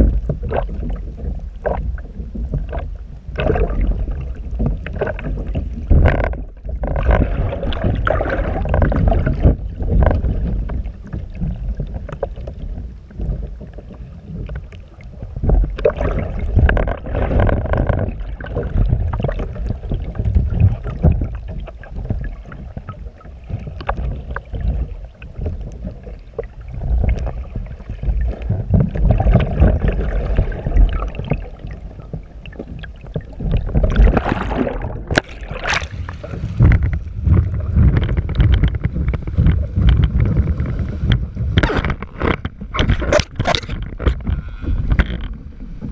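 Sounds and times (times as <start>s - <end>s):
muffled water sloshing: 0.0s - 45.9s
sharp knocks on hull: 36.6s - 45.3s.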